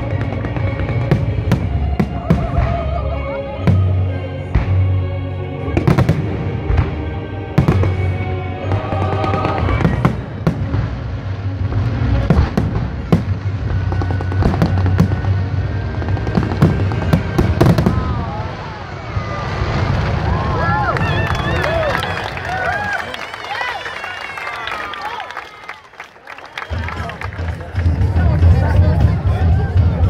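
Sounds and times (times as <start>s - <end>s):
music with low bass: 26.8s - 30.0s.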